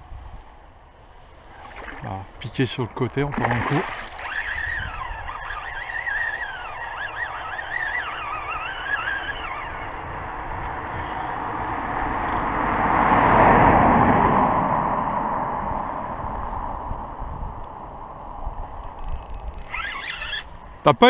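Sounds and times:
fishing reel drag buzzing: 3.4 - 12.5, 18.8 - 20.7.

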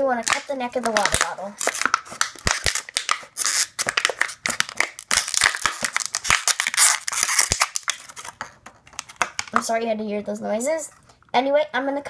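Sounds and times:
scissors cutting plastic bottle: 0.2 - 9.6
plastic crackling: 0.2 - 9.8.

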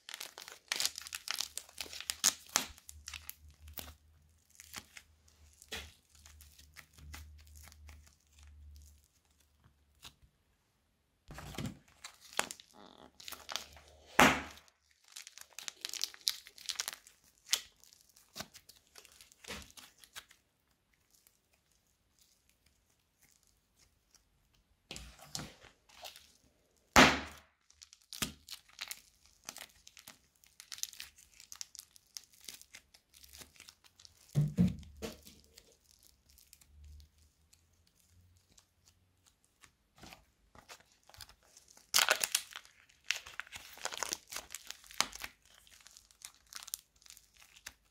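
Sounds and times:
plastic bags crinkling: 0.0 - 9.4, 11.3 - 20.4, 27.6 - 39.3, 40.0 - 47.9
plastic tearing rips: 11.4 - 20.4, 41.0 - 47.9.

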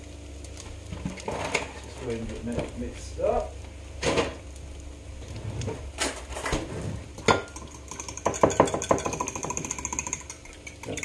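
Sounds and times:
eggs being beaten: 7.2 - 11.0
fork clinking against ceramic mug: 7.3 - 11.0.

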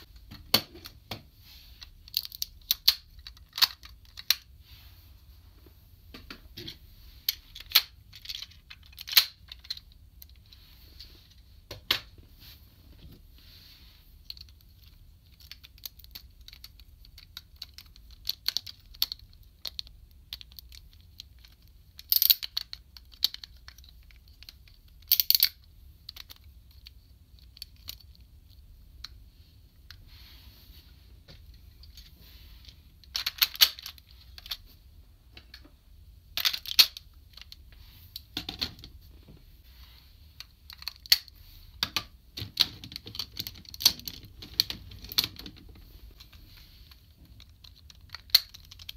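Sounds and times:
plastic toy parts clicking: 1.9 - 4.5, 7.3 - 10.4, 14.2 - 28.2, 33.0 - 34.6, 36.4 - 37.6, 40.4 - 45.6, 47.3 - 48.9.

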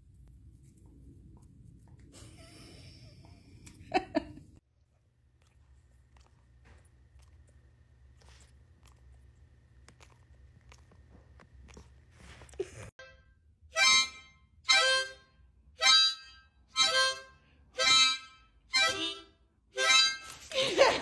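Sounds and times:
harmonica chords: 13.8 - 20.4.

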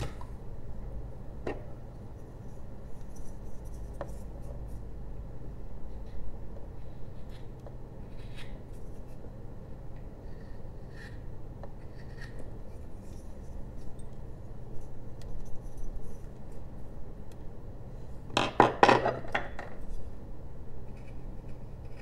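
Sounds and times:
knife carving wood: 6.8 - 9.2, 10.0 - 14.2, 20.9 - 22.0.

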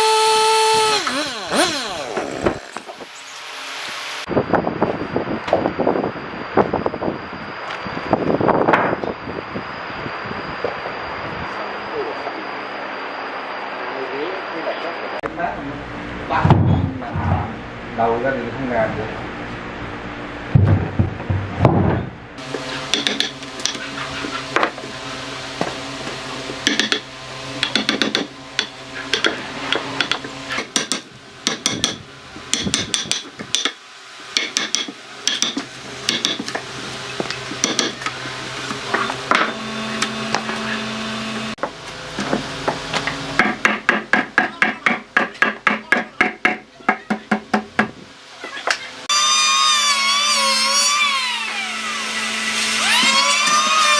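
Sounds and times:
hammer striking steel chisel: 22.9 - 23.8, 26.6 - 27.0, 27.6 - 33.8, 34.4 - 36.5, 37.6 - 38.0.

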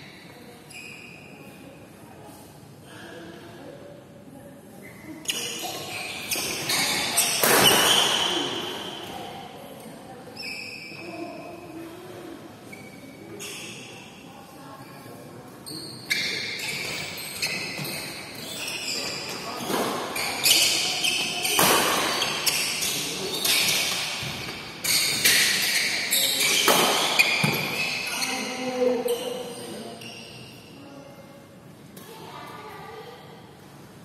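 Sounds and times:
shoe squeaks on court: 0.0 - 1.6, 4.8 - 9.2, 10.3 - 11.4, 12.7 - 14.2, 15.6 - 30.8
racket hitting shuttlecock: 6.4 - 8.3, 21.5 - 22.6, 26.5 - 27.8.

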